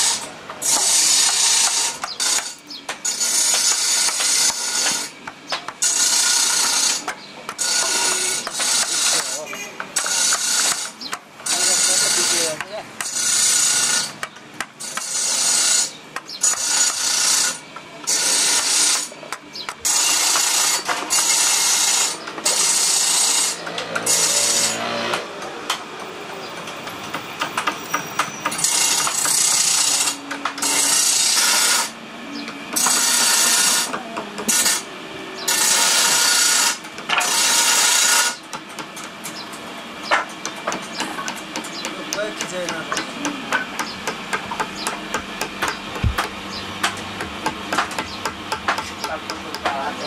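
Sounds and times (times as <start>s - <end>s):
harsh woodworking tool bursts: 5.8s - 14.2s, 19.8s - 25.4s, 28.4s - 32.0s, 32.8s - 33.9s, 34.5s - 38.5s
wooden mallet tapping chisel: 40.1s - 49.8s.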